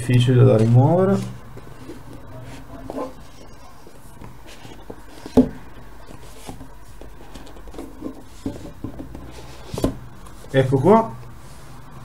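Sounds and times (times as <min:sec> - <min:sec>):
hands rubbing cardboard box: 0:01.1 - 0:10.6.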